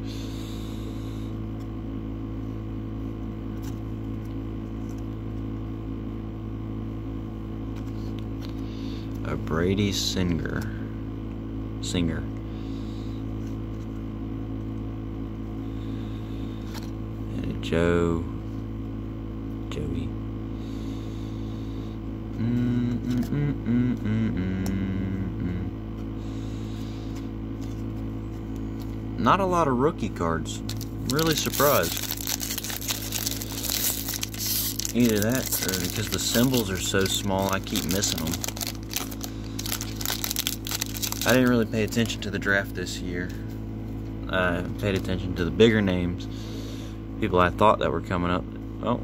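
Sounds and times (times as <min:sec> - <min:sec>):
low background hum: 0:00.0 - 0:49.0
person humming: 0:22.3 - 0:26.0
cards being flipped: 0:30.7 - 0:42.1.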